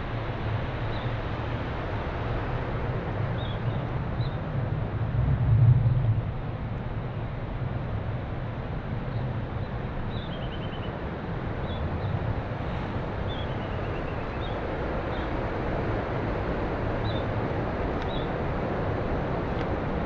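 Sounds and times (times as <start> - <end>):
small birds chirping: 13.2 - 15.3.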